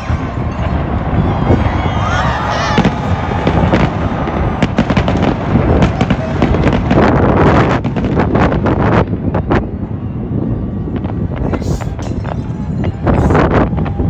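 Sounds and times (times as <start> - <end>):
sharp firework cracks and bangs: 2.6 - 9.5.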